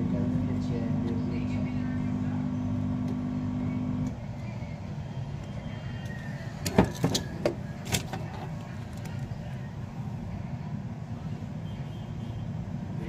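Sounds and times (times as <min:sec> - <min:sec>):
steady hum: 0:00.0 - 0:05.6.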